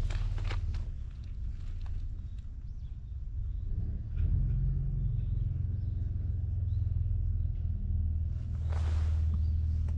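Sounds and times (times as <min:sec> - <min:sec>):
vehicle engine rumbling: 0:00.0 - 0:09.9.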